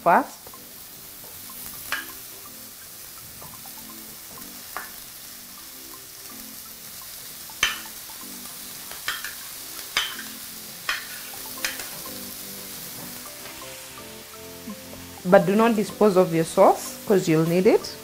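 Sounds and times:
onions frying in a pan: 0.0 - 18.0
spoon knocking against plate: 7.6 - 7.8.

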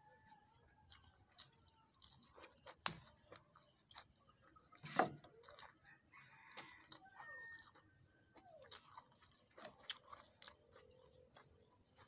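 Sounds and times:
person chewing with wet mouth clicks: 5.4 - 5.9, 6.6 - 12.0.

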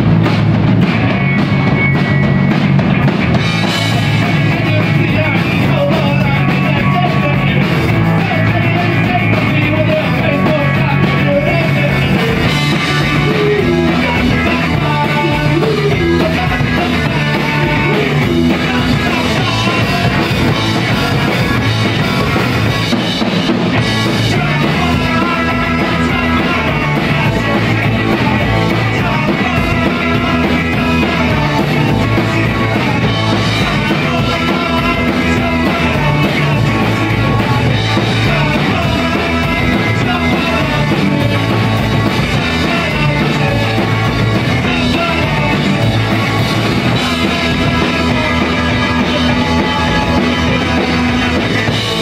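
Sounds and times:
drum kit: 0.0 - 52.0
loud electric guitars: 0.0 - 52.0
punk rock band playing live: 0.0 - 52.0.

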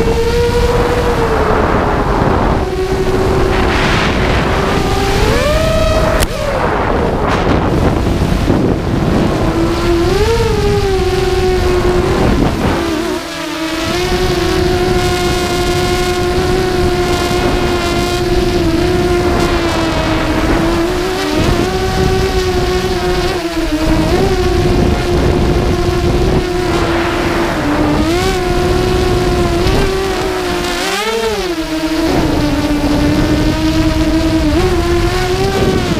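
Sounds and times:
drone motors whining: 0.0 - 35.9
wind on microphone: 0.0 - 35.9.

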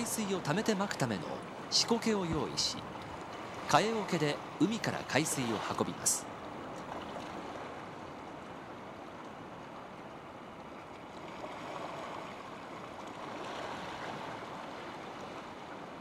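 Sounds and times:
seawater washing over rocks: 0.0 - 6.2.

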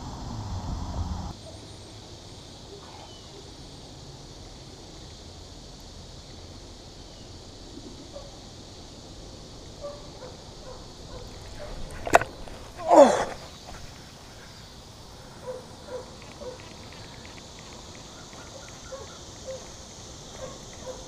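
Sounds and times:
wind rumbling on microphone: 0.0 - 1.3
steady high hiss: 0.0 - 21.0
faint bird chirps: 1.4 - 3.8.

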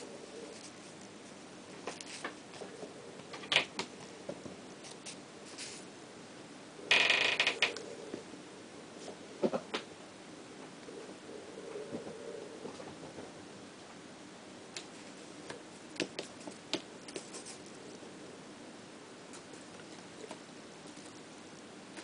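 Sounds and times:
feather toy rustling scrape: 5.1 - 5.8.

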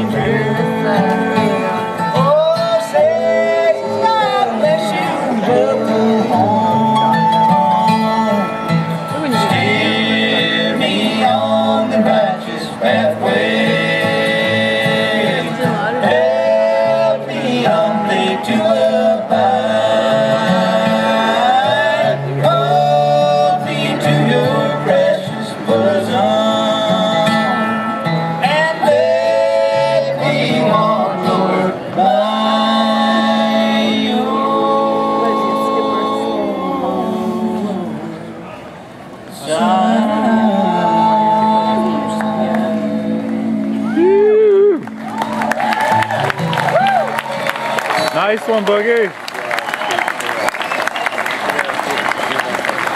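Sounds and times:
mandolin: 0.0 - 36.5
men singing in harmony: 0.0 - 38.4, 39.3 - 44.4
acoustic guitar: 0.0 - 52.9.

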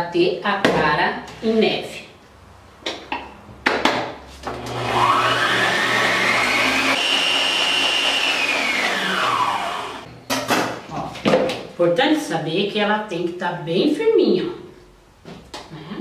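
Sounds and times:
stand mixer motor whining: 4.5 - 10.1.

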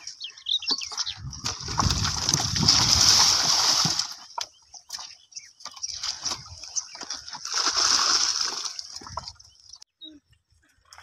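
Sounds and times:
hooves splashing through puddle: 0.6 - 9.6
cart wheel splashing: 1.3 - 5.1, 5.7 - 9.5.

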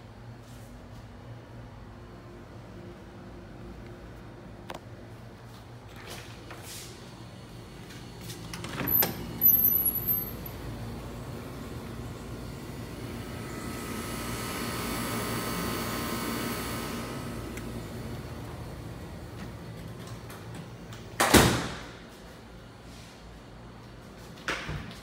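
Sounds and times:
steady outdoor hum: 0.0 - 25.0
door squeak: 8.5 - 10.4.

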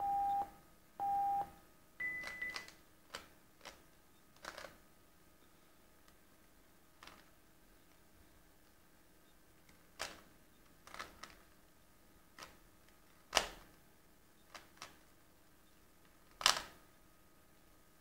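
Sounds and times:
puzzle cube turning clacks: 4.4 - 4.8, 10.8 - 11.5.

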